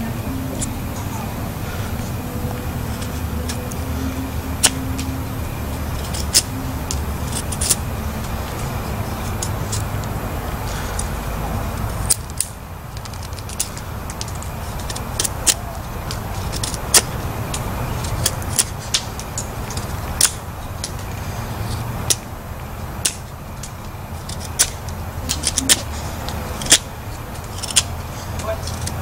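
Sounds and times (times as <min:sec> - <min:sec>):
low background rumble: 0:00.0 - 0:29.0
knife whittling wood: 0:24.1 - 0:29.0.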